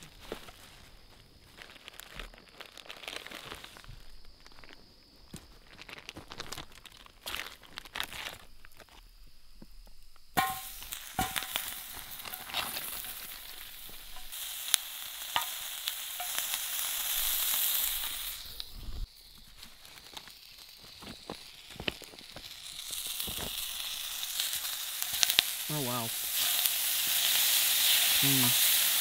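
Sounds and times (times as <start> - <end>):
campfire crackles: 0.0 - 29.0
sausages sizzling in a skillet: 9.8 - 29.0.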